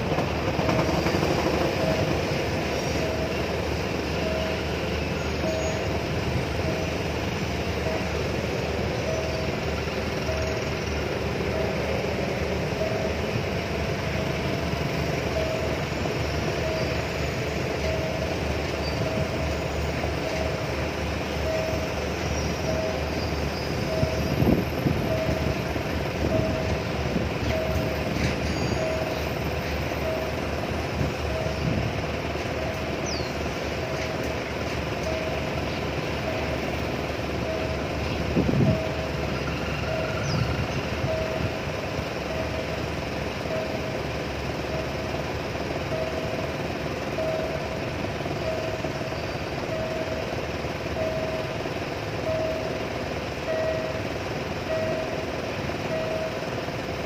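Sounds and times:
level crossing warning bell: 0.0 - 57.0
train carriages rumbling past: 0.0 - 57.0.

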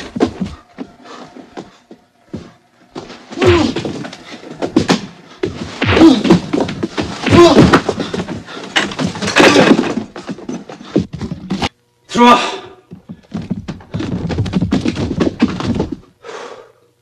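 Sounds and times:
pained cries and groans: 3.3 - 4.3
heavy blows and thuds: 3.3 - 11.7, 12.9 - 16.1.

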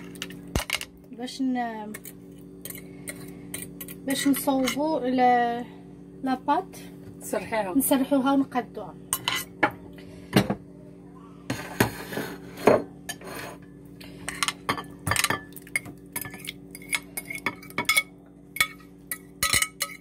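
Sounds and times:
utensil scraping glass bowl: 16.2 - 18.0.

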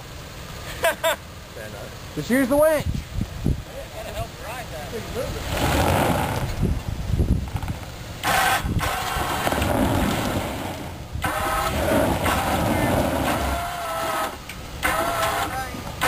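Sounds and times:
low engine rumble: 3.0 - 16.0
electric winch whining: 8.2 - 15.6.

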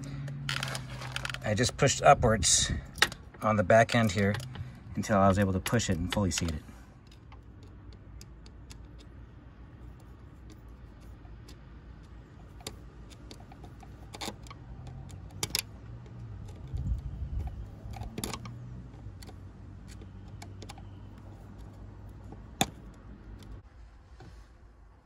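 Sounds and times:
metallic clicks of hand tools: 3.9 - 9.2.

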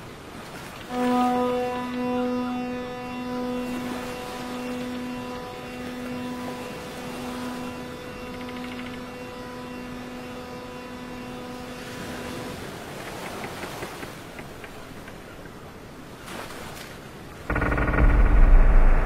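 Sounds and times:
low drone with overtones: 0.9 - 12.9, 17.5 - 19.0
faint scattered ticks: 8.2 - 9.4.

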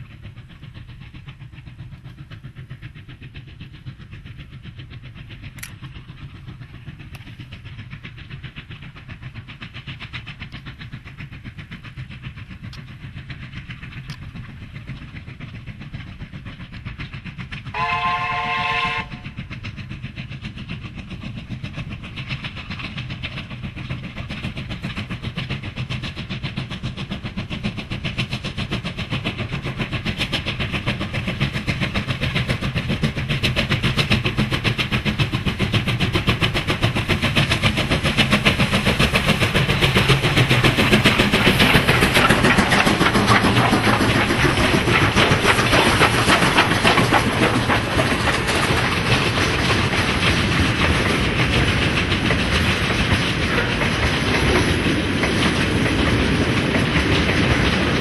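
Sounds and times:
steam locomotive exhaust beats: 0.0 - 58.0
steam whistle blast: 17.7 - 19.3.

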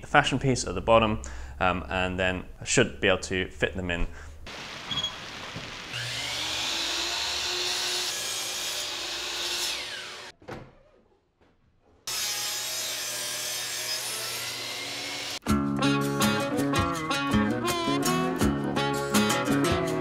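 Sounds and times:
miter saw cutting wood: 4.6 - 10.3, 12.1 - 15.4.

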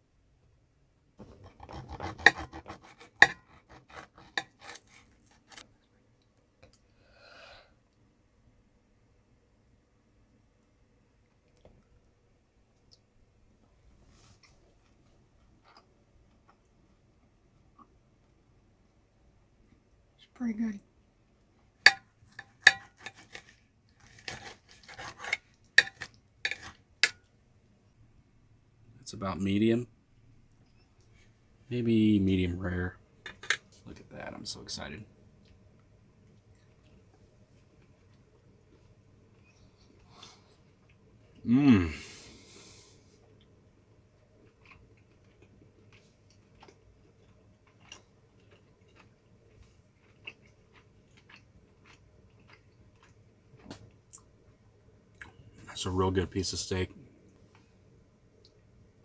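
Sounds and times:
knife and fork scraping plate: 1.2 - 5.6, 22.3 - 27.2
cutlery clinking on a plate: 21.9 - 23.4.

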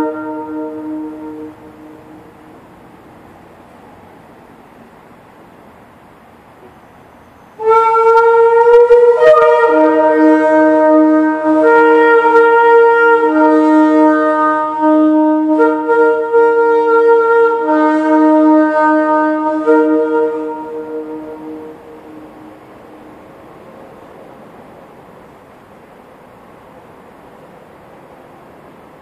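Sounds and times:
shofar blast: 0.0 - 2.4, 7.6 - 23.2.

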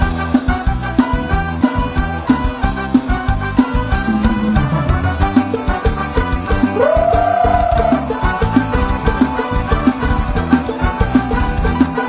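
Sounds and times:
live band music: 0.0 - 12.0
quick drum beat: 3.7 - 11.8.

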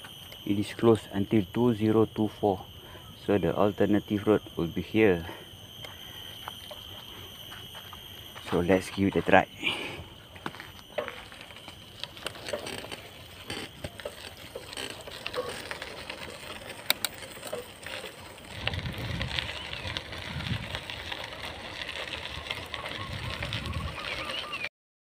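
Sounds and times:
bicycle tyres crunching on gravel: 0.0 - 24.7
bike clicks and rattles: 10.3 - 24.7.

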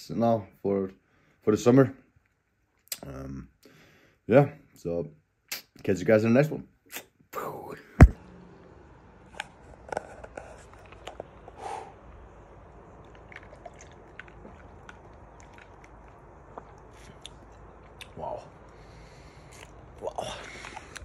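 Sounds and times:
low background hum: 7.3 - 21.0
drinking sounds: 10.6 - 21.0.

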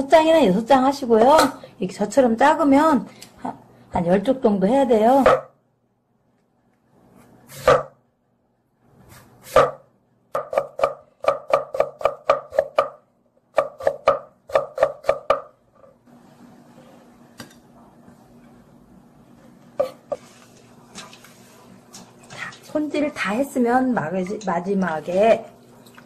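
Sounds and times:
knife chopping on wooden board: 5.2 - 5.5, 7.5 - 8.0, 9.4 - 15.5.

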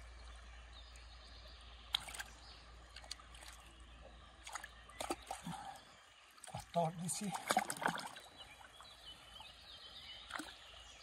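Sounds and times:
river water sloshing and trickling: 0.0 - 11.0
sharp water splashes: 1.8 - 3.7, 4.4 - 5.6, 6.4 - 8.4.

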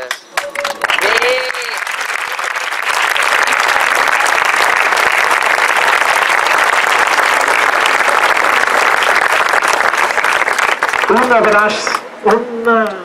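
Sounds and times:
crowd applauding: 0.0 - 12.1.

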